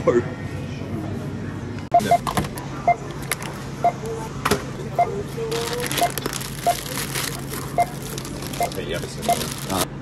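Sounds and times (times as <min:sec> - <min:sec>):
checkout scanner beeps: 0:01.9 - 0:09.9
plastic bag crinkling: 0:05.5 - 0:09.9.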